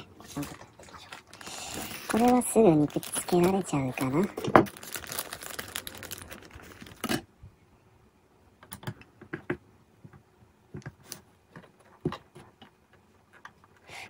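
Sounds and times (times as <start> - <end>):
plastic parts rustling: 0.4 - 7.2.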